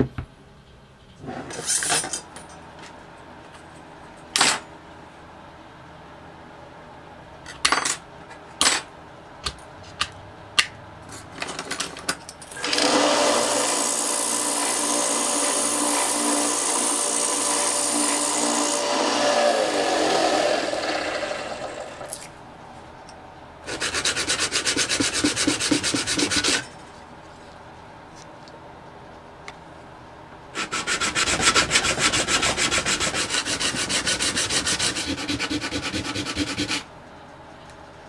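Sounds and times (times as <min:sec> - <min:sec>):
belt sander grinding metal: 0:12.6 - 0:22.1
sanding block rubbing on sandpaper: 0:23.7 - 0:26.6, 0:30.6 - 0:36.8.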